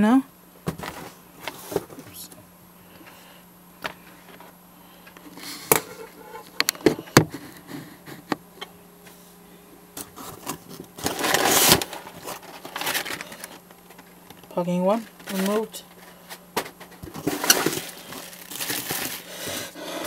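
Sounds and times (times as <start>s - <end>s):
packing material crinkling: 10.1s - 20.0s
packing material rustling: 10.2s - 14.2s, 15.0s - 20.0s.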